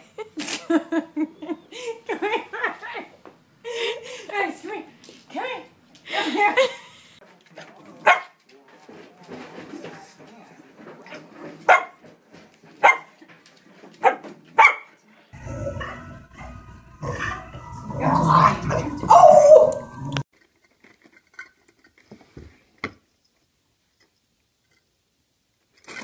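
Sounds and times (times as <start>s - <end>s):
dog barking: 8.0s - 8.4s, 11.7s - 12.0s, 12.8s - 13.1s, 14.0s - 15.0s
dogs growling: 15.4s - 20.3s.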